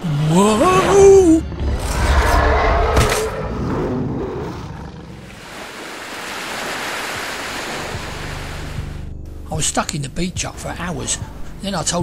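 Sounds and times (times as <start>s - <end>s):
monster roar: 0.0s - 5.5s
sea surf washing over rocks: 5.3s - 9.0s.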